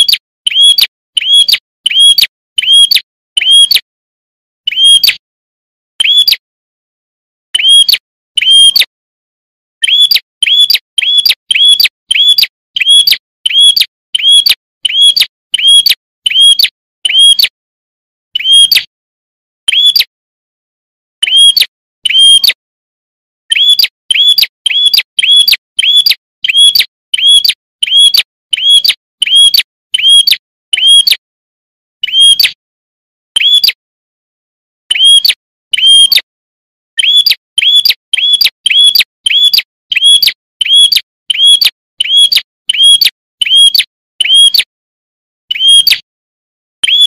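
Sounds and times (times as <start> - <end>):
bird chirping: 0.0 - 3.7, 4.7 - 5.2, 6.0 - 6.4, 7.6 - 8.9, 9.8 - 17.5, 18.4 - 18.9, 19.7 - 20.1, 21.2 - 22.6, 23.5 - 31.1, 32.0 - 32.5, 33.4 - 33.8, 34.9 - 36.2, 37.0 - 44.6, 45.5 - 46.0.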